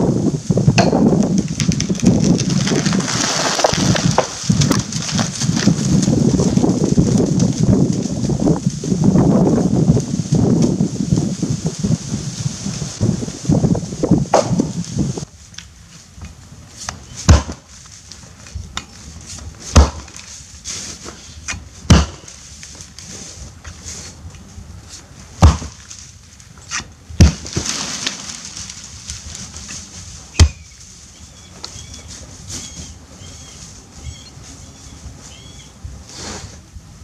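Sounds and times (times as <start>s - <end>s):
axe chopping into tree trunk: 14.3s - 14.7s, 17.2s - 17.7s, 19.7s - 20.2s, 21.5s - 22.3s, 25.4s - 25.8s, 26.7s - 27.9s, 30.4s - 30.6s.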